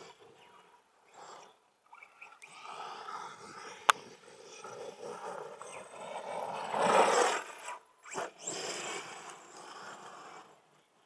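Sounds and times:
rc car driving on dirt: 0:00.0 - 0:11.0.

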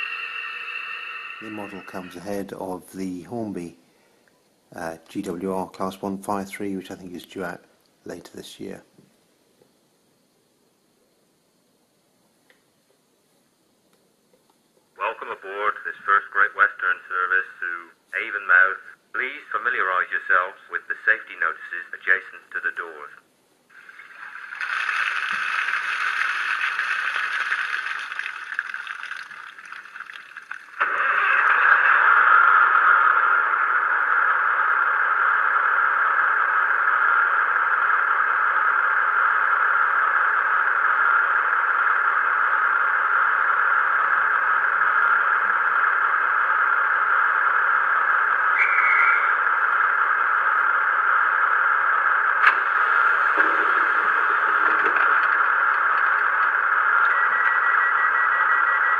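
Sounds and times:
click: 0:12.4 - 0:13.0, 0:13.9 - 0:14.6.

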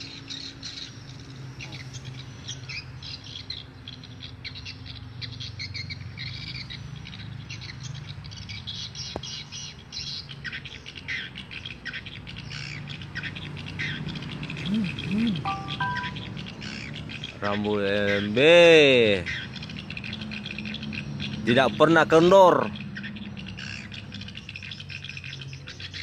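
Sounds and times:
recorded bird lure call: 0:00.0 - 0:26.0
swiftlets twittering: 0:14.5 - 0:16.5.

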